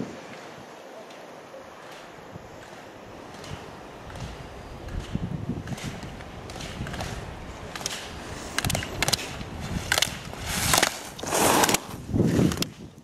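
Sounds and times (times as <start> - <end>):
wind rumble on microphone: 2.2 - 13.0
skis scraping on hard snow: 4.9 - 12.9.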